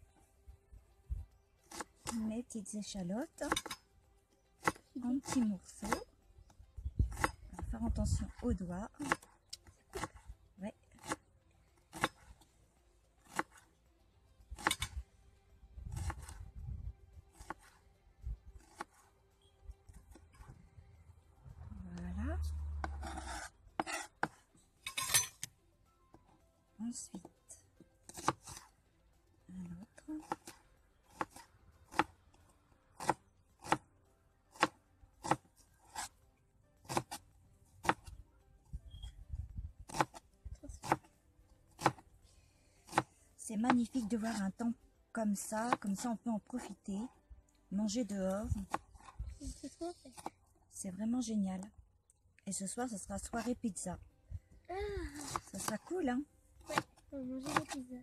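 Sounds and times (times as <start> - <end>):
knife chopping on board: 7.1 - 7.4, 11.9 - 12.2, 13.3 - 13.5, 18.6 - 19.0, 28.1 - 28.6, 30.2 - 30.5, 33.0 - 33.8, 34.5 - 36.1, 36.8 - 37.2, 39.9 - 40.2, 40.8 - 41.1, 41.8 - 42.0, 42.9 - 43.1
low rumble: 20.6 - 23.0.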